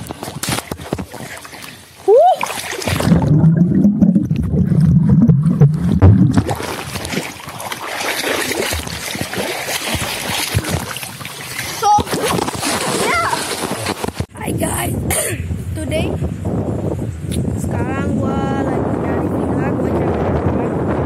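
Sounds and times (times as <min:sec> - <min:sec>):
water splashing and dripping: 0:00.0 - 0:14.3
underwater bubbling rumble: 0:02.8 - 0:11.6.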